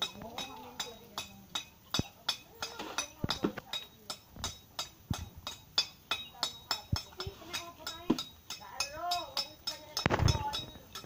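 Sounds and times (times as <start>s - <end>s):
faint voices: 0.0s - 11.0s
tools clinking on masonry: 0.0s - 11.0s.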